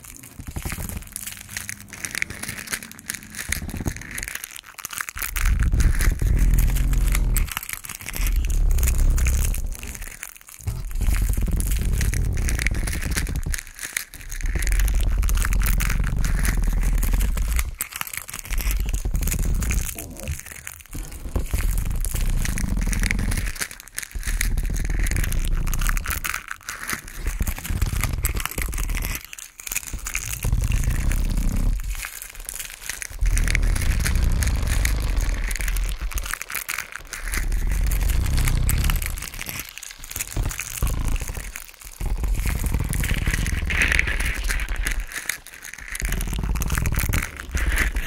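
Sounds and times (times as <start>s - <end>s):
dense crackling and crunching: 0.0s - 48.0s
deep rumble: 5.2s - 7.5s, 33.2s - 36.3s, 37.4s - 39.5s.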